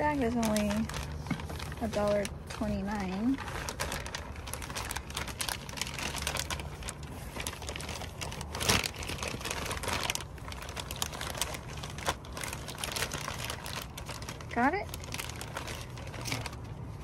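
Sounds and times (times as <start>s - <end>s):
plastic bag rustling and crinkling: 0.0s - 17.0s.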